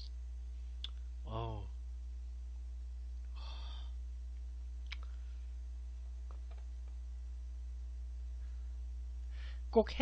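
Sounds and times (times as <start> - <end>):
low electrical hum: 0.0 - 10.0
man sighing: 3.3 - 4.0.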